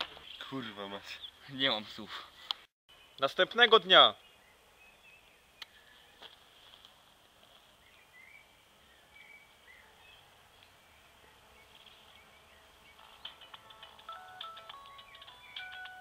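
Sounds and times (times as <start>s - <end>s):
faint bird chirps: 7.8s - 13.2s.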